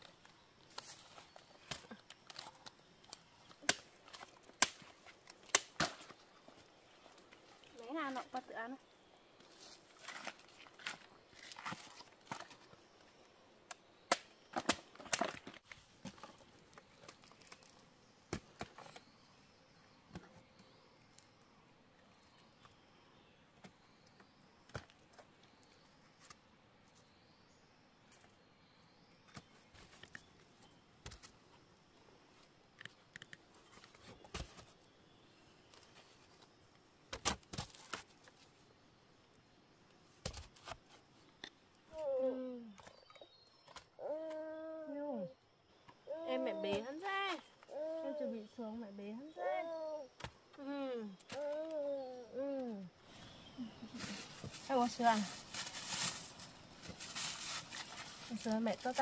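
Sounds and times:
bamboo knocking and thudding: 0:14.1 - 0:19.0.

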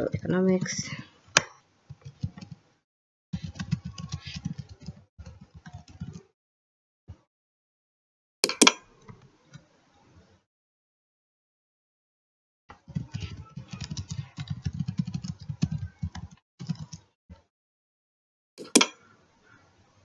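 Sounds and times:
keyboard typing: 0:02.0 - 0:02.6, 0:03.4 - 0:06.3, 0:08.4 - 0:08.8, 0:12.9 - 0:17.0, 0:18.6 - 0:19.0
mouse button click: 0:08.4 - 0:08.8, 0:18.6 - 0:19.0.

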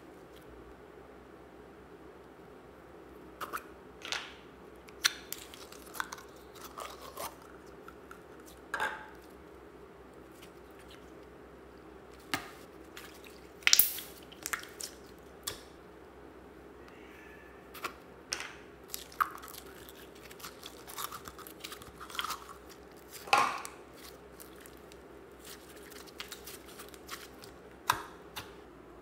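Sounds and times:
faint steady hum: 0:00.0 - 0:29.0
slime squelching and popping: 0:12.2 - 0:15.7, 0:18.9 - 0:28.5.

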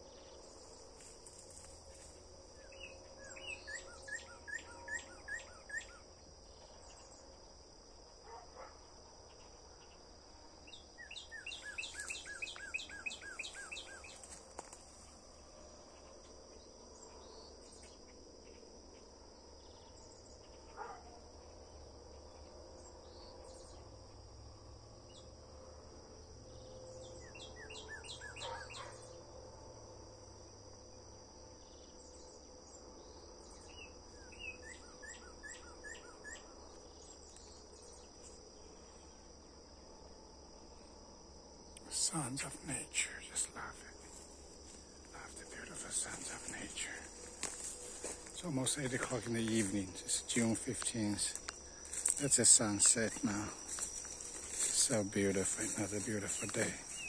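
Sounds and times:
songbird singing: 0:00.0 - 0:07.6, 0:09.3 - 0:15.2, 0:26.5 - 0:29.2, 0:31.6 - 0:39.7, 0:41.6 - 0:57.0
insect chorus drone: 0:00.0 - 0:57.0.

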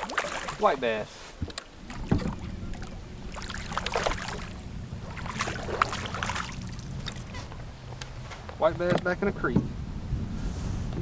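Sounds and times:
fish splashing at water surface: 0:00.0 - 0:00.8, 0:01.5 - 0:07.4
steady low hum: 0:00.0 - 0:11.0.

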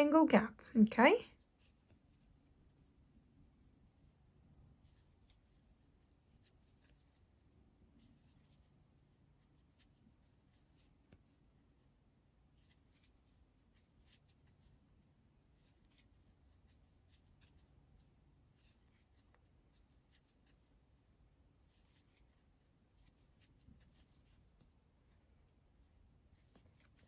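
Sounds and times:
yarn rustling on crochet hook: 0:01.0 - 0:27.0.

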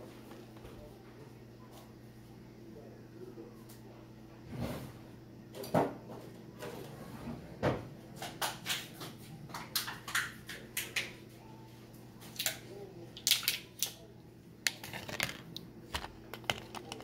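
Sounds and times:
plastic handling noise: 0:14.6 - 0:17.0.

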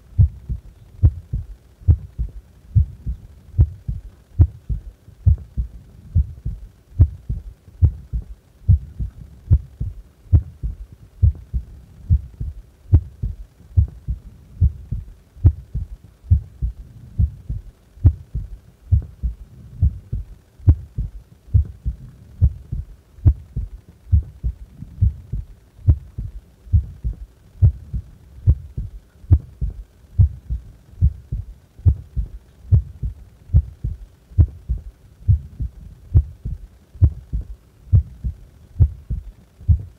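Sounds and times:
heart beating: 0:00.1 - 0:39.9.

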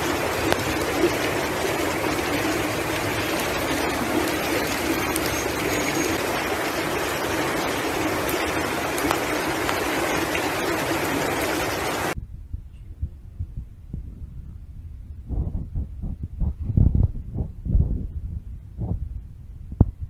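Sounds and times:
rushing floodwater roar: 0:00.0 - 0:12.2
faint low thumps: 0:12.2 - 0:20.0.

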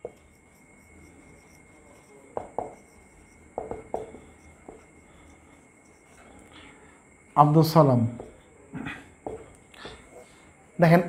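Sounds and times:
marker scratching on whiteboard: 0:00.0 - 0:06.3.

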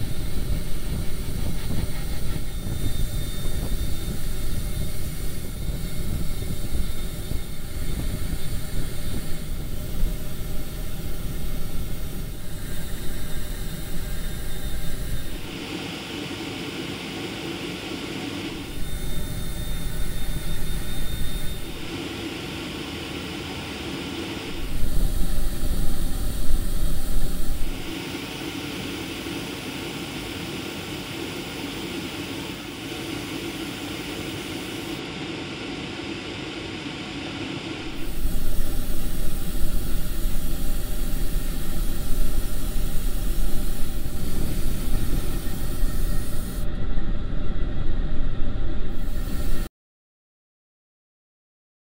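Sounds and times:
airbrush hissing: 0:00.0 - 0:15.6, 0:18.6 - 0:21.9, 0:24.5 - 0:28.0, 0:37.9 - 0:46.7, 0:48.9 - 0:49.7.

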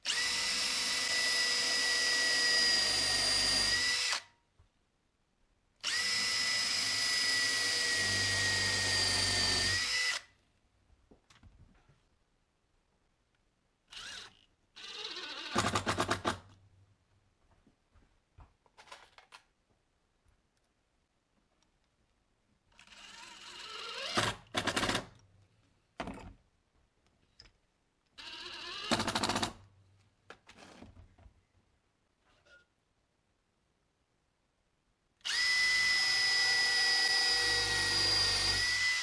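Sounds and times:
cordless drill driving screws: 0:00.0 - 0:04.3, 0:05.8 - 0:10.3, 0:13.9 - 0:15.9, 0:22.7 - 0:25.0, 0:35.2 - 0:39.0
rapid rattling of drill: 0:00.1 - 0:04.2, 0:13.9 - 0:16.4, 0:22.7 - 0:25.1, 0:28.2 - 0:29.6, 0:35.3 - 0:39.0.

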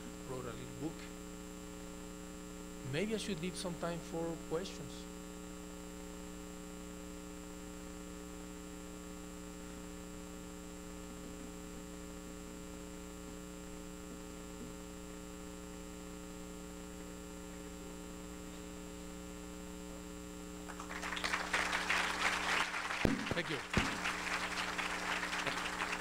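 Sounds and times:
electrical mains hum: 0:00.0 - 0:26.0
faint high whine: 0:00.0 - 0:26.0.

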